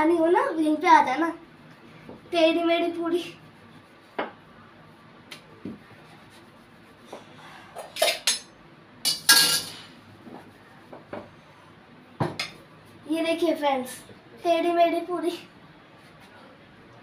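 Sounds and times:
kitchen utensils clinking: 7.8 - 8.5, 9.1 - 9.9.

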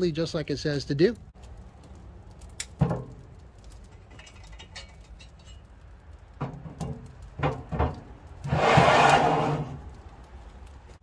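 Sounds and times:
metal grill grates clanking: 2.6 - 9.9.

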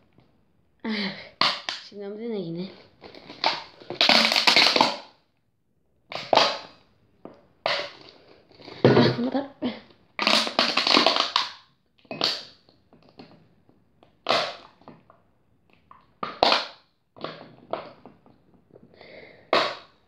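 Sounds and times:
plastic bottle crackling: 1.3 - 1.9, 2.8 - 5.2, 6.1 - 6.8, 7.7 - 9.3, 10.2 - 13.4, 14.0 - 15.1, 15.8 - 18.4, 19.4 - 20.0.

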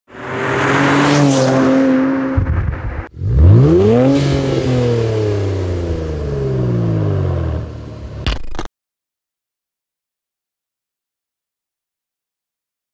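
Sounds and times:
car exhaust revving: 1.6 - 8.2.

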